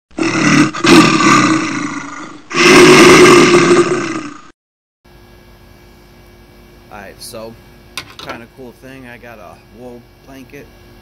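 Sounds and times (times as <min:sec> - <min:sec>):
bear roaring: 0:00.1 - 0:04.5
faint steady hum: 0:05.1 - 0:11.0.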